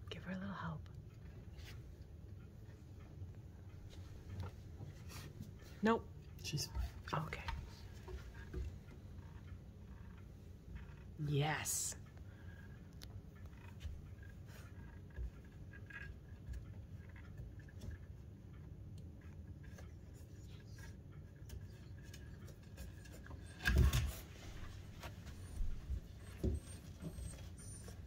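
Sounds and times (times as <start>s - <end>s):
paws tapping on wood: 12.0s - 28.0s.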